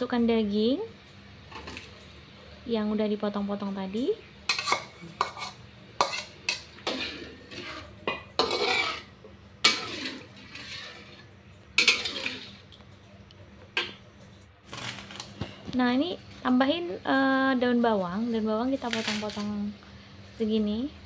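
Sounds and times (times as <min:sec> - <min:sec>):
spatula clinking and scraping wok: 0:04.5 - 0:12.6.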